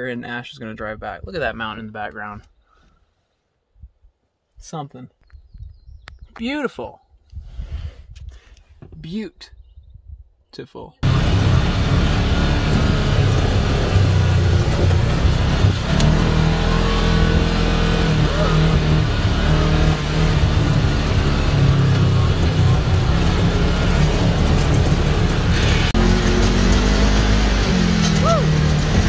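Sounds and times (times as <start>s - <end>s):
atv engine running: 11.0s - 29.0s.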